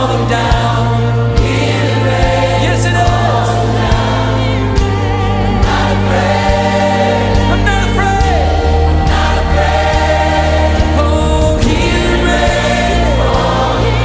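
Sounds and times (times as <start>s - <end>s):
gospel choir singing: 0.0s - 14.0s
held bass notes: 0.0s - 14.0s
steady beat: 8.2s - 14.0s.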